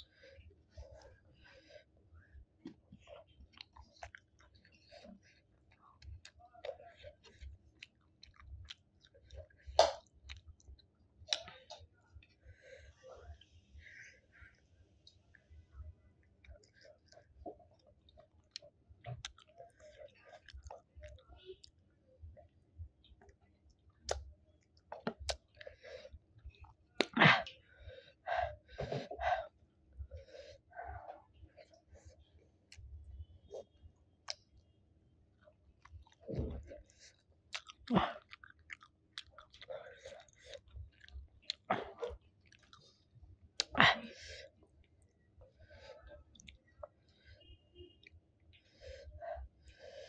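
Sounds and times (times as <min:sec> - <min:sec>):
chewing and wet mouth smacks: 0:02.6 - 0:12.4, 0:16.2 - 0:22.3, 0:23.1 - 0:25.7, 0:33.6 - 0:34.6, 0:35.4 - 0:43.8, 0:46.0 - 0:48.6.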